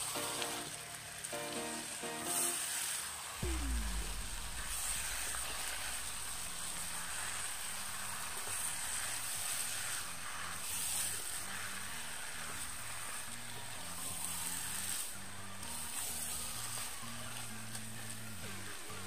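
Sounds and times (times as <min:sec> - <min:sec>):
meat sizzling in hot oil: 0:00.0 - 0:03.4, 0:04.4 - 0:19.0
low thump: 0:03.4 - 0:07.0.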